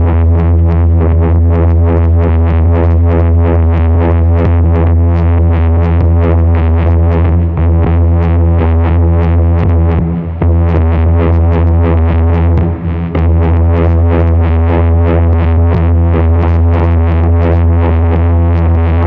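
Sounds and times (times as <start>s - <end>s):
electronic drone: 0.0s - 19.0s
fast electronic pulsing: 0.0s - 19.0s.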